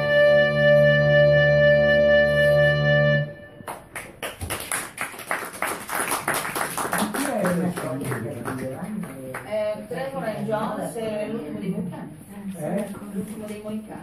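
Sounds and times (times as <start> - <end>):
electronic keyboard chord: 0.0 - 3.6
audience applauding: 3.6 - 9.6.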